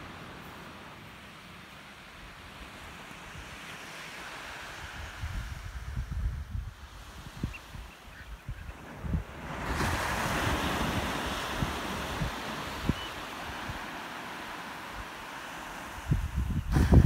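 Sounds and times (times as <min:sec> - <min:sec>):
waves breaking on a beach: 0:00.0 - 0:17.0
wind buffeting microphone: 0:04.6 - 0:17.0.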